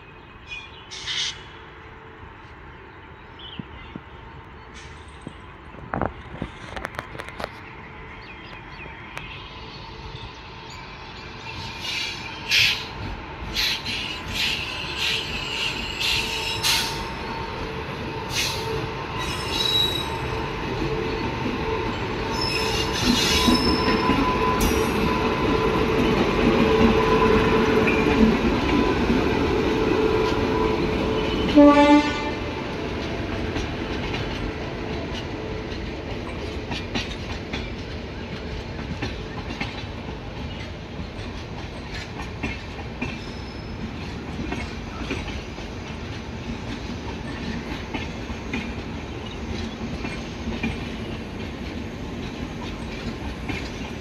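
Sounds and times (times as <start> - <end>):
locomotive whine: 4.4 - 36.8
train wheels clicking over rail joints: 11.7 - 54.0
train horn blast: 29.7 - 32.6.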